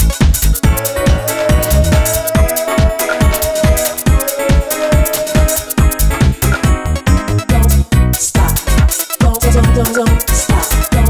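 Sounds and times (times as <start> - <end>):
electronic dance music: 0.6 - 6.5.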